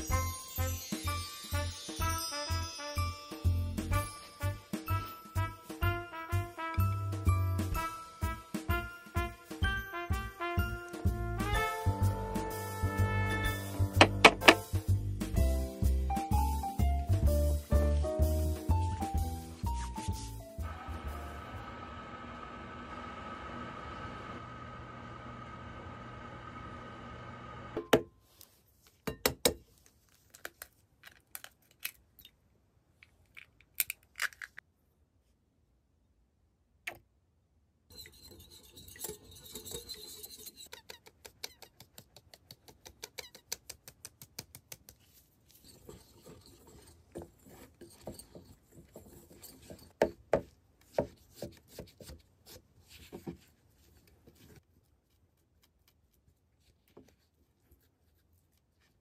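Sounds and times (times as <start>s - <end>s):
eggs cracking: 33.3s - 34.6s
whisk rattling against glass bowl: 37.9s - 41.0s
utensils scraping a bowl: 37.9s - 42.2s, 45.4s - 50.0s.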